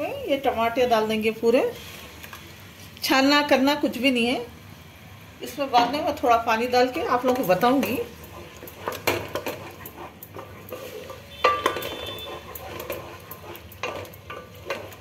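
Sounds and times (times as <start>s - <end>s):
spatula scraping metal pot: 7.1s - 15.0s
spatula knocking against pot: 11.3s - 15.0s.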